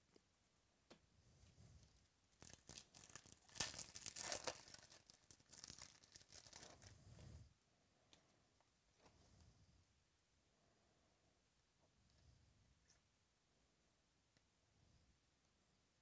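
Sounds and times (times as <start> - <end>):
foil wrapper tearing and crinkling: 2.4 - 6.9.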